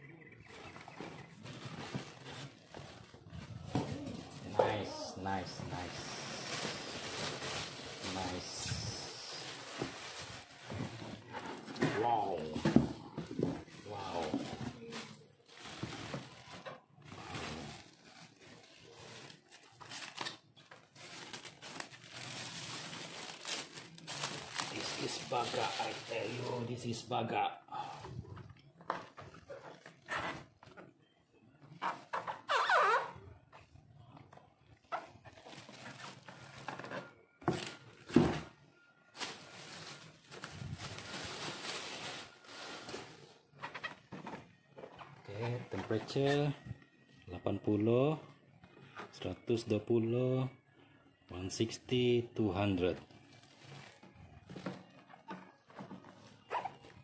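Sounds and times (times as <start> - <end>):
plastic packing rustling: 0.9 - 27.1, 34.9 - 46.7, 52.8 - 57.0
plastic film crinkling: 1.2 - 11.3, 12.0 - 27.1, 34.9 - 36.9, 39.1 - 44.1, 52.8 - 57.0
plastic tearing: 15.0 - 26.4.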